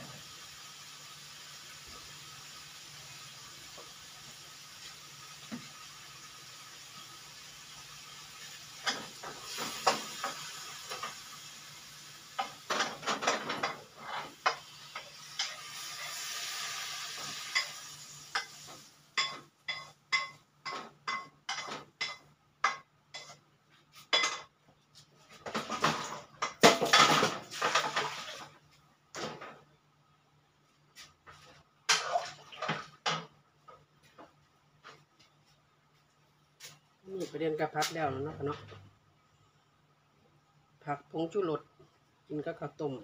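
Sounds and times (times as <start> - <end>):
frying sizzle: 0.0 - 24.5, 25.3 - 29.7, 31.3 - 34.3.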